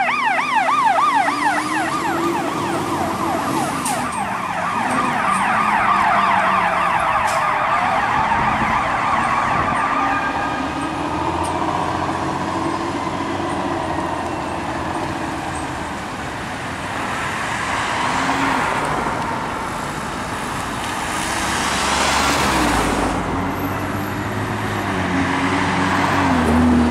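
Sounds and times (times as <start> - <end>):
city traffic: 0.0 - 26.9
fire truck siren yelping and wailing: 0.0 - 26.9
vehicle passing close: 16.7 - 26.9.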